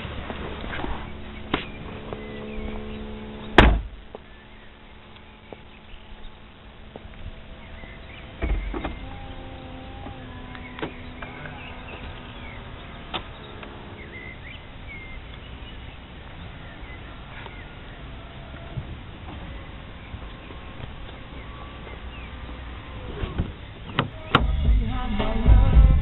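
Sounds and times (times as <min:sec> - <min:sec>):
motor humming: 0:00.4 - 0:25.0
heavy thump: 0:03.6 - 0:04.0.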